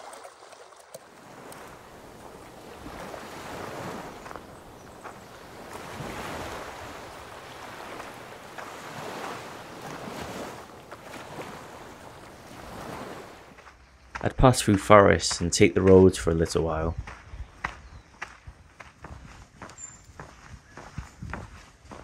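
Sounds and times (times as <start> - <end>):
waves washing over rocks: 1.0 - 13.5.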